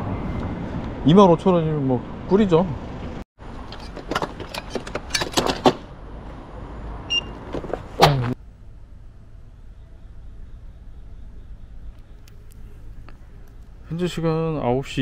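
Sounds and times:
sharp clicks and knocks: 3.6s - 5.8s
short electronic beep: 7.1s - 7.4s.

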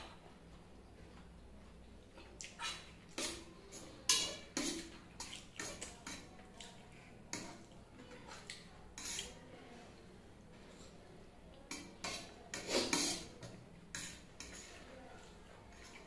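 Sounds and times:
fork scraping on metal plate: 9.0s - 9.4s, 12.0s - 13.3s, 13.9s - 14.8s.

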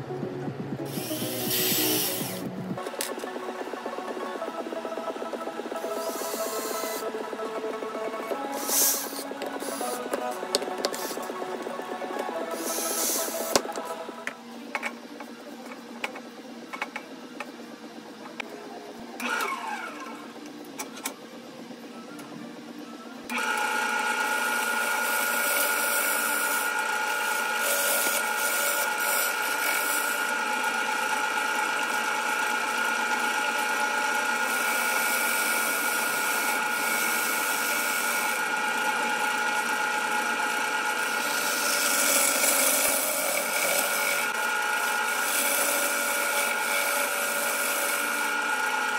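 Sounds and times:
wood lathe whine: 0.8s - 14.4s, 22.6s - 48.9s
gouge hissing on wood: 1.0s - 2.3s.

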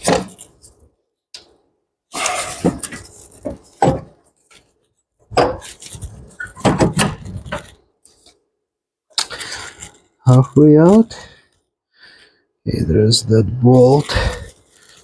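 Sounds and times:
metal clunks and scrapes: 2.1s - 4.2s, 5.3s - 7.8s.

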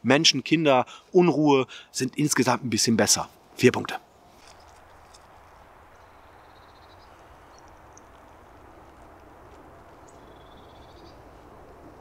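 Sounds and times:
outdoor background noise: 0.0s - 12.0s
bird chirps and trills: 5.9s - 8.4s, 10.0s - 11.4s.

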